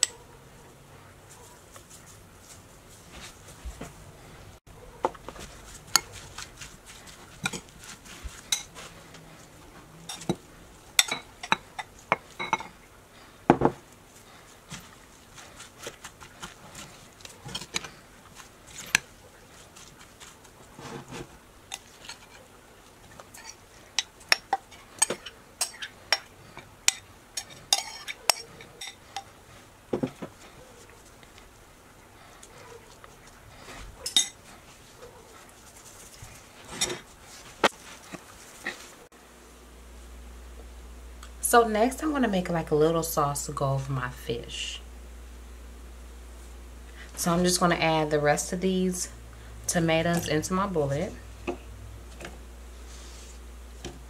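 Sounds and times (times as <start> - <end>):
spoon stirring salsa in bowl: 5.0 - 12.8, 13.8 - 29.5, 34.0 - 37.4
spoon clinking against ceramic bowl: 11.0 - 12.7, 26.9 - 29.0.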